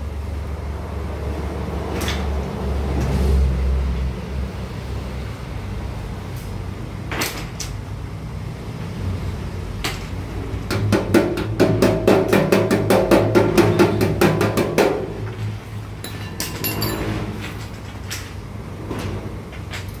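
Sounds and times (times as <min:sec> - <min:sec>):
hammer tapping on sheet metal: 0:10.6 - 0:16.9.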